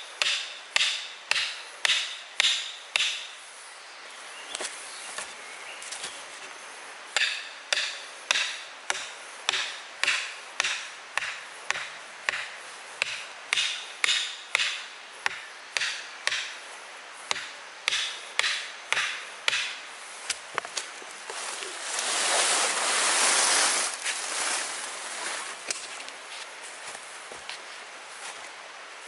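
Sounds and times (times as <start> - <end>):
rustling and scraping: 20.0 - 28.6.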